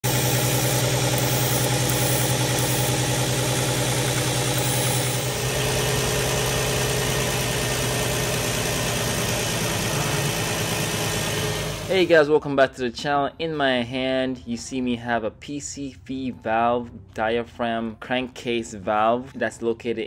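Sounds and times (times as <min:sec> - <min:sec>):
car engine idling roughly: 0:00.0 - 0:12.1.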